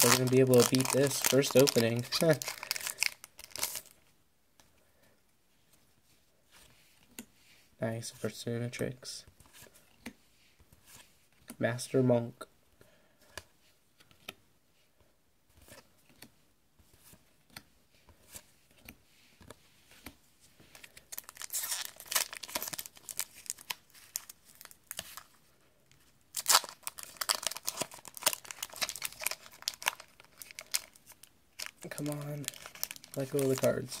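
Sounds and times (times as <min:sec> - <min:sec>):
foil wrapper tearing and crinkling: 0:00.0 - 0:03.9, 0:21.1 - 0:25.0, 0:26.4 - 0:33.9.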